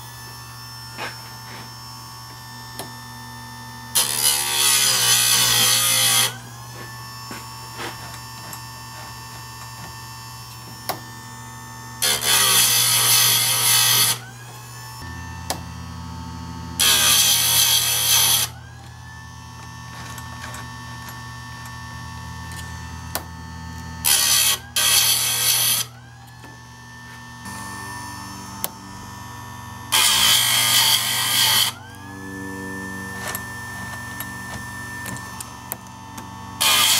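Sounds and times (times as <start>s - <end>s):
sharpener motor humming: 0.0s - 15.8s, 16.6s - 36.9s
grinding wheel rasping on chain: 4.0s - 9.8s, 16.8s - 18.6s, 24.0s - 25.9s, 29.9s - 35.7s, 36.6s - 36.9s.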